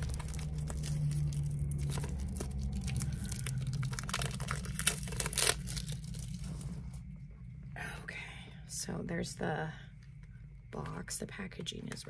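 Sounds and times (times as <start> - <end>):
plastic wrap crinkling and tearing: 0.0 - 6.9.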